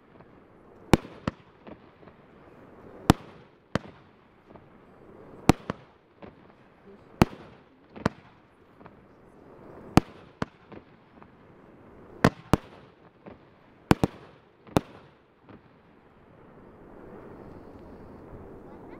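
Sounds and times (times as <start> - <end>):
low firework crackle: 0.0 - 18.9
faint firework pops: 5.4 - 6.6, 7.2 - 9.0, 9.9 - 11.4, 12.2 - 15.7.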